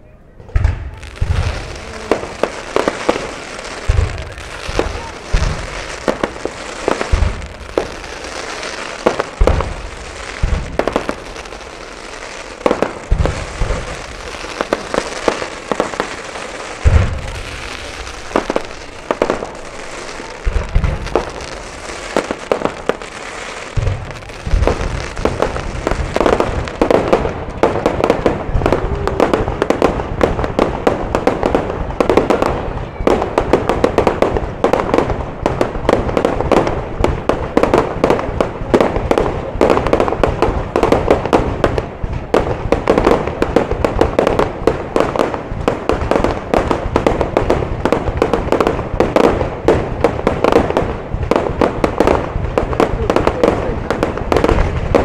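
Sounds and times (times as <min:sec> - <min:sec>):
fireworks booming and crackling: 0:00.0 - 0:55.0.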